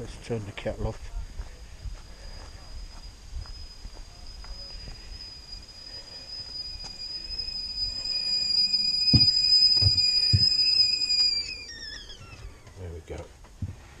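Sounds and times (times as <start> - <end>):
kettle whistling: 2.0 - 12.9
dull thumps: 9.1 - 10.6.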